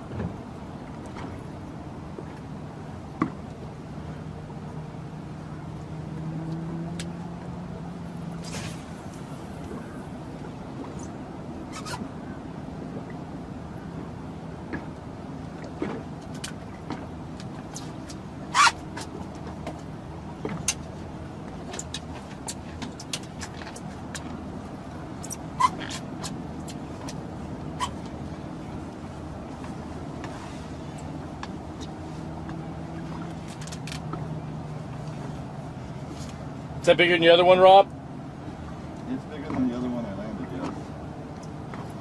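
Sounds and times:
boat motor droning: 0.0s - 42.0s
brief hiss: 8.4s - 10.0s.

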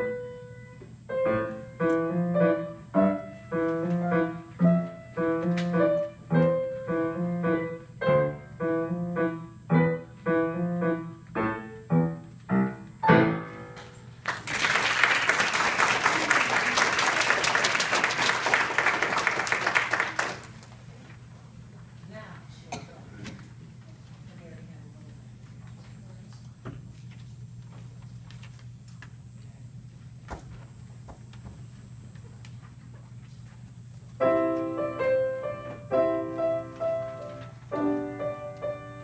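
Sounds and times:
grand piano notes and chords: 0.0s - 14.2s, 34.2s - 39.0s
audience applauding: 14.2s - 20.6s.

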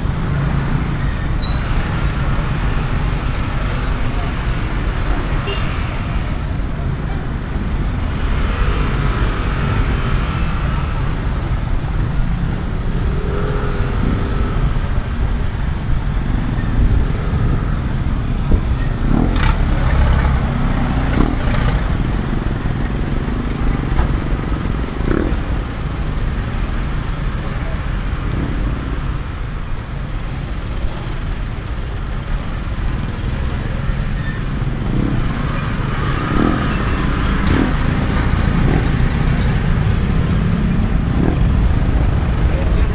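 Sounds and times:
vehicle engines passing: 0.0s - 42.9s
people's voices: 30.4s - 42.9s.

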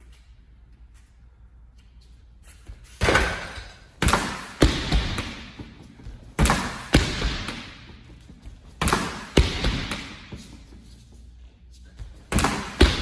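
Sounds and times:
punches hitting punching bag: 3.0s - 8.0s, 8.8s - 10.3s, 12.3s - 13.0s.

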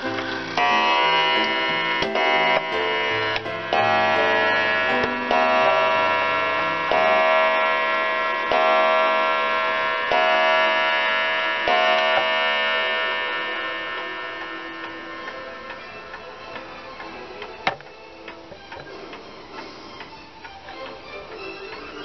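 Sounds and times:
clock striking on a gong: 0.0s - 17.1s.

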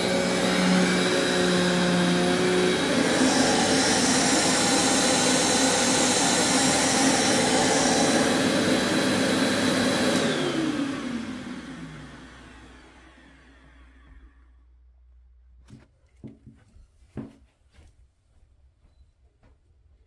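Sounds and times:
vacuum motor winding down whine: 0.0s - 14.7s
upright vacuum cleaner on carpet: 0.0s - 14.8s.

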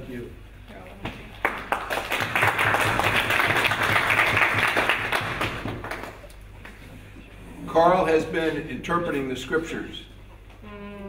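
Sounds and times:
audience applauding: 1.4s - 6.3s.

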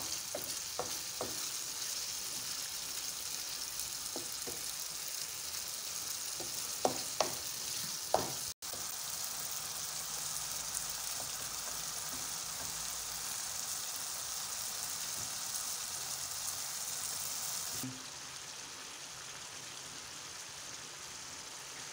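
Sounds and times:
wooden spoon knocking a pan: 0.0s - 1.6s, 4.0s - 4.8s, 6.4s - 8.8s, 11.1s - 12.9s
sauce sizzling in a frying pan: 0.0s - 21.9s.

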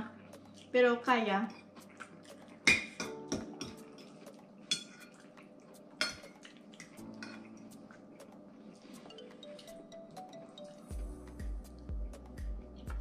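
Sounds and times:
fork clinking against bowl: 4.7s - 5.2s.

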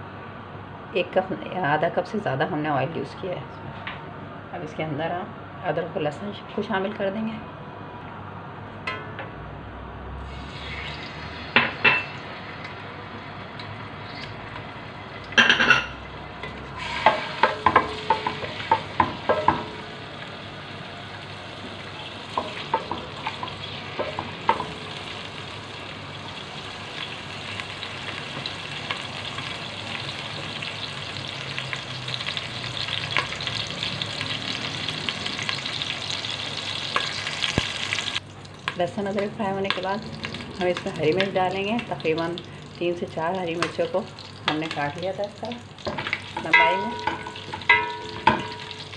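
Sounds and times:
ginger and garlic sizzling in oil: 10.2s - 48.9s.

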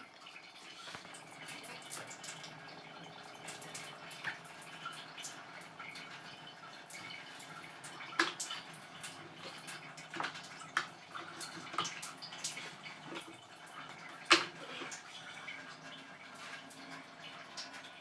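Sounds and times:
water running and dripping: 0.0s - 18.0s.

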